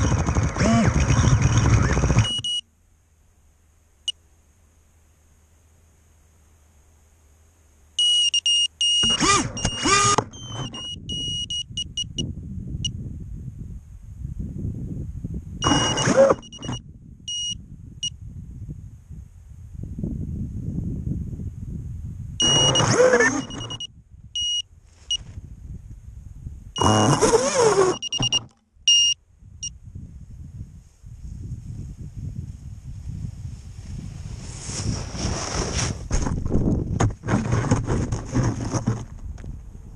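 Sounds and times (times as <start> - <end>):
drone motors spinning up: 0.0 - 2.6, 8.9 - 11.4, 15.6 - 16.8, 22.4 - 23.9, 26.8 - 29.1
high-pitched buzzer beeps: 2.2 - 2.6, 8.0 - 12.3, 15.6 - 17.6, 22.4 - 25.2, 26.8 - 29.2.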